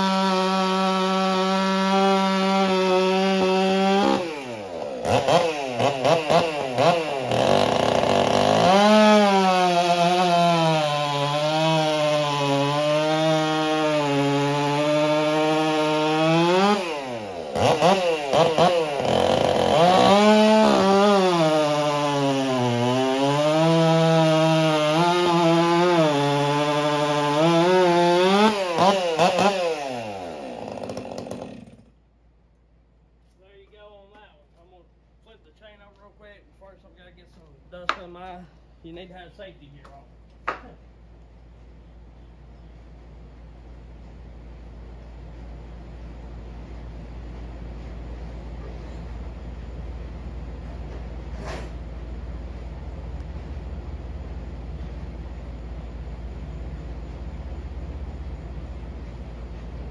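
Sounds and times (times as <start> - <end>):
chainsaw cutting log: 0.0 - 32.0.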